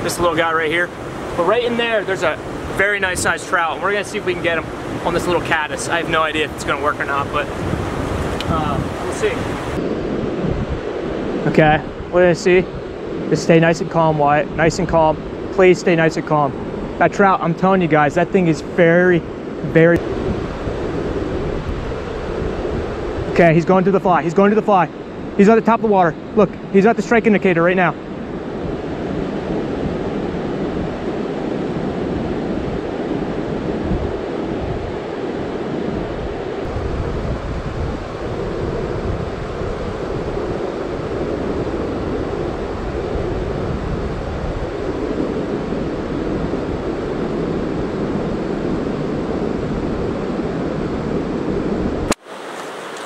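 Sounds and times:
river water rushing: 0.0 - 9.8, 52.1 - 53.0
wind rumbling on microphone: 0.0 - 53.0.

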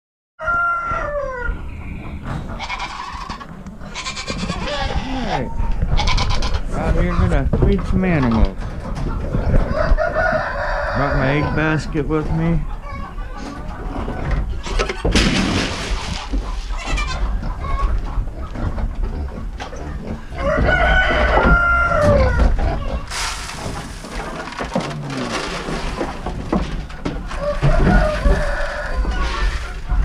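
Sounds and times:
rooster crowing: 0.4 - 1.6, 9.7 - 11.3, 20.4 - 22.5, 27.4 - 29.4
chickens clucking: 0.4 - 30.0.

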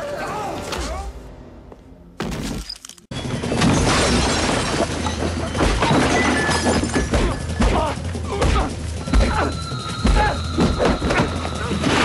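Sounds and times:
glass shattering: 2.3 - 7.6.

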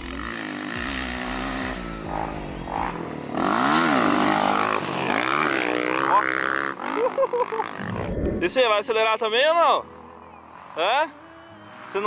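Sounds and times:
dirt bike engine revving: 0.0 - 8.2.

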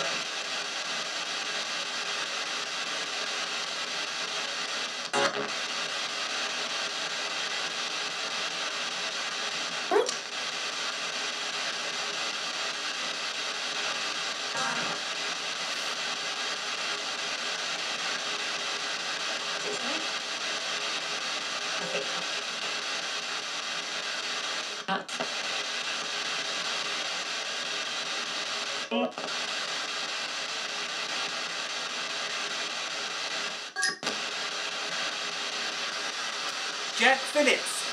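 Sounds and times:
snatches of broadcast voice: 0.0 - 0.2, 14.5 - 16.0, 19.6 - 20.1, 21.8 - 22.3, 24.8 - 25.4, 28.9 - 29.4, 35.7 - 37.9
radio static hiss: 0.0 - 37.9.

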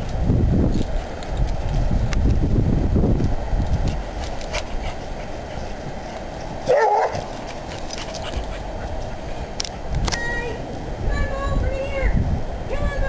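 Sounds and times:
wind on microphone: 0.0 - 13.0
dog barking: 6.7 - 7.2.

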